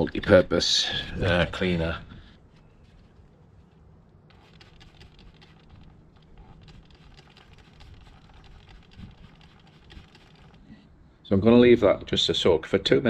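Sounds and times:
spray hissing: 0:06.7 - 0:10.6.

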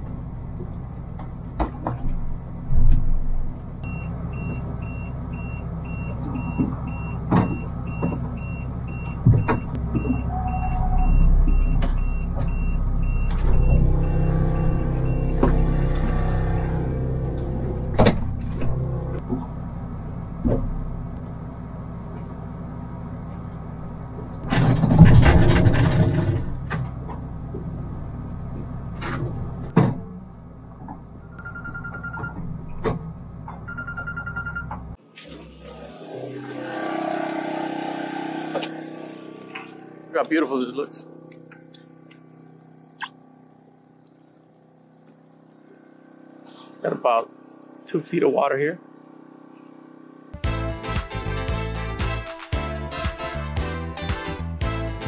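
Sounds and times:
faint electronic beeping: 0:03.8 - 0:16.8
outboard motor running: 0:12.8 - 0:19.7
rush of noise: 0:35.3 - 0:41.5.

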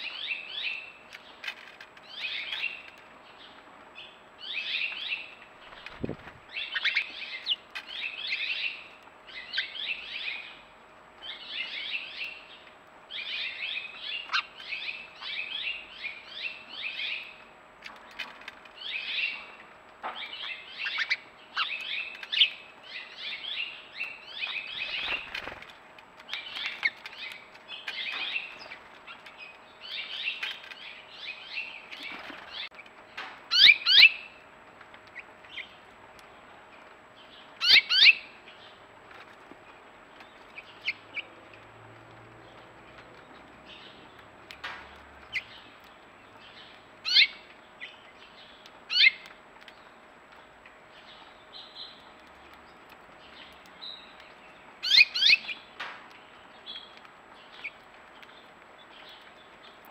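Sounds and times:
small songbirds chirping: 0:00.0 - 0:59.9
flutter of wings: 0:05.6 - 0:06.5, 0:24.8 - 0:25.8.

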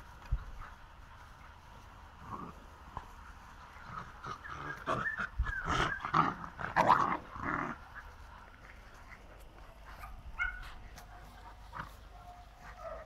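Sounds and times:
puppies growling: 0:00.0 - 0:13.0.

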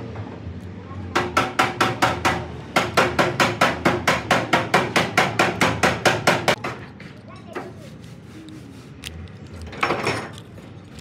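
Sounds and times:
rapid hammering on metal: 0:01.1 - 0:06.8.

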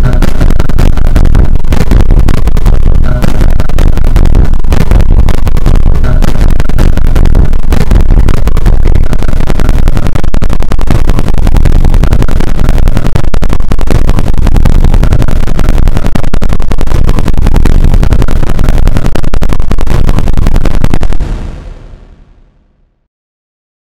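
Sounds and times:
distorted bass-boosted remix: 0:00.0 - 0:23.0.

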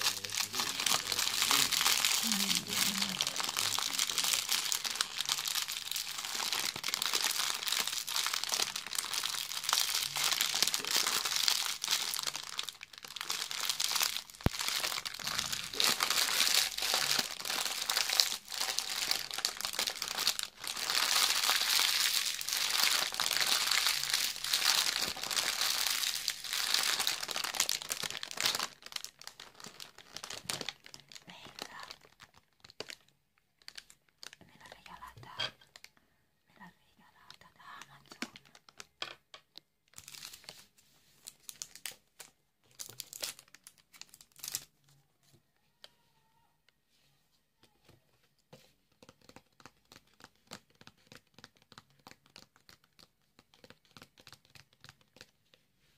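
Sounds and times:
plastic bag crinkling: 0:00.0 - 0:34.9, 0:37.4 - 0:39.0, 0:39.9 - 0:44.7.

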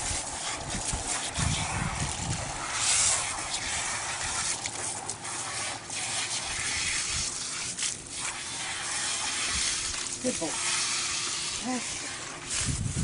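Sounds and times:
water spraying from a hose: 0:00.0 - 0:13.0.

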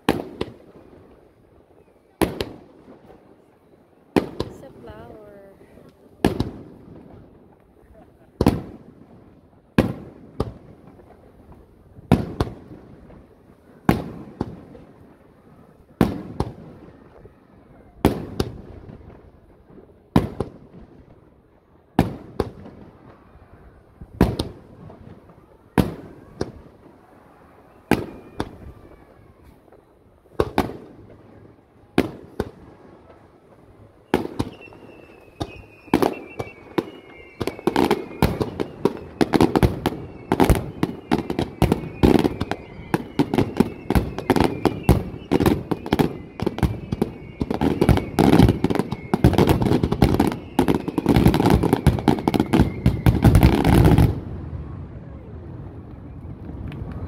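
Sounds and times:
firework booms: 0:00.0 - 0:57.0
falling firework whistle: 0:22.0 - 0:57.0.

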